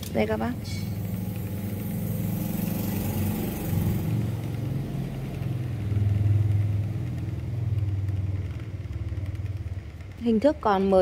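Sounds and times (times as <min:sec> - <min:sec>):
engine humming: 0:00.0 - 0:11.0.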